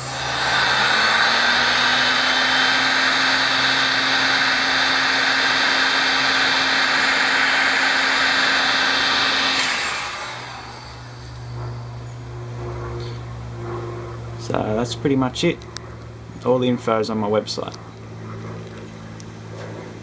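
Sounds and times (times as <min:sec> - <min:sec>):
heat gun blowing air: 0:00.0 - 0:12.0
faint motor hum: 0:00.0 - 0:20.0.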